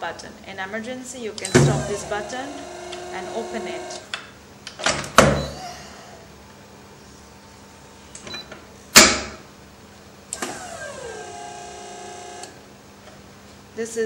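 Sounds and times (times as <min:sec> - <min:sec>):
machine humming tone: 0:01.5 - 0:04.1, 0:10.3 - 0:12.6.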